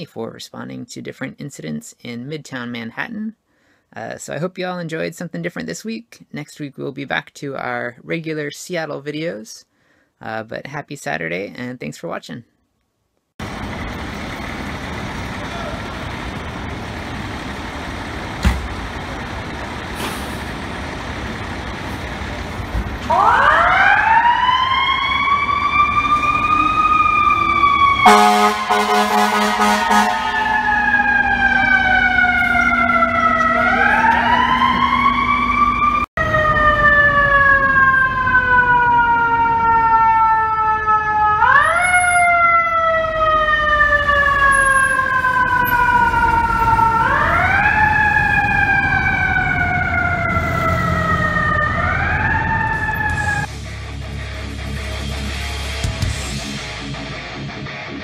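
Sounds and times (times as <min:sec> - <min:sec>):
mechanical siren winding up and down: 0:23.0 - 0:53.5
loud air horn blast: 0:28.0 - 0:30.6.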